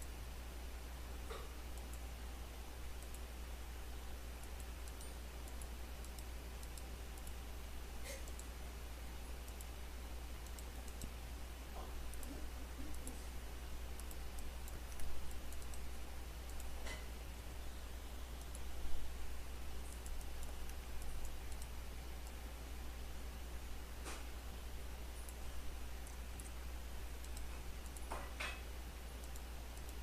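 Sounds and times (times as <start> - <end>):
low hum and hiss: 0.0 - 30.0
computer mouse clicking: 1.3 - 2.1, 3.0 - 3.3, 4.3 - 7.4, 8.0 - 8.6, 9.4 - 9.8, 10.4 - 11.2, 11.8 - 17.2, 18.4 - 18.8, 19.8 - 22.4, 25.2 - 30.0.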